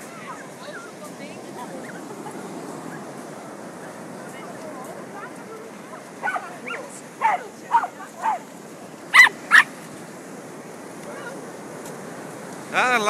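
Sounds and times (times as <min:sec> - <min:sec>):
puppy barking: 0:06.2 - 0:08.4, 0:09.1 - 0:09.7
puppy yapping: 0:09.2 - 0:09.7.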